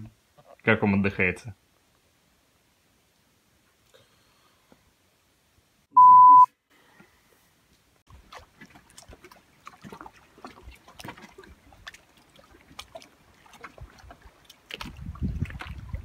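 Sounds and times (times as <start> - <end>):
small waves lapping: 8.1 - 16.0
wind rumble on microphone: 13.7 - 16.0.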